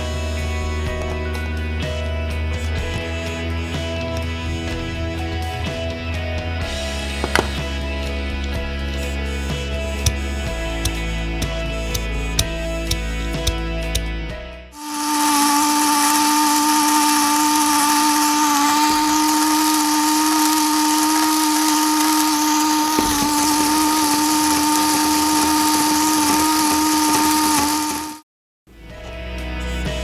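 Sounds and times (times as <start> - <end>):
plastic gearbox motor whine: 7.2 - 7.7, 14.8 - 28.2.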